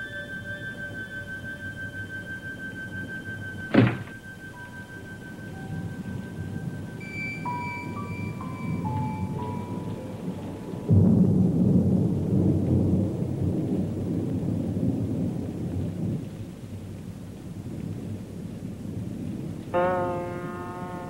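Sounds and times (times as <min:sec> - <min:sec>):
faint sustained melody notes: 0:00.0 - 0:11.3, 0:19.7 - 0:21.0.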